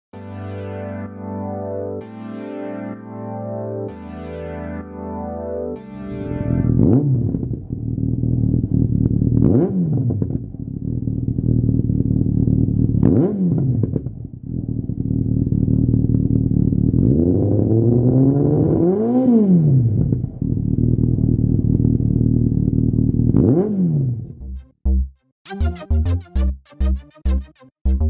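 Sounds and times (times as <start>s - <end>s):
motorcycle engine idling and revving: 6.3s - 24.5s.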